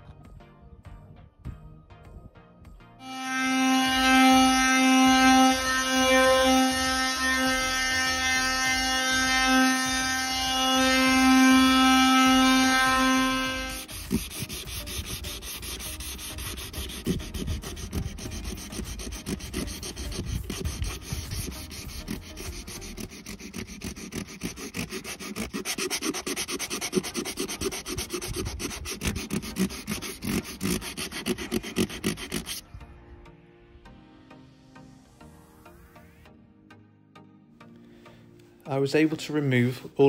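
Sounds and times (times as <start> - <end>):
hand sanding rubbing strokes: 3.1 - 32.6.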